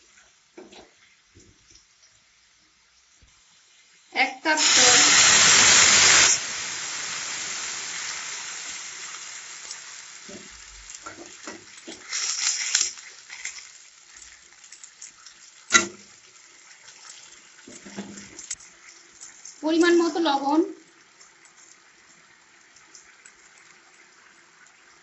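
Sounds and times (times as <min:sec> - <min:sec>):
food sizzling in pan: 0:00.0 - 0:25.0
water hissing in hot oil: 0:00.0 - 0:25.0
spatula knocking pan: 0:15.7 - 0:16.1.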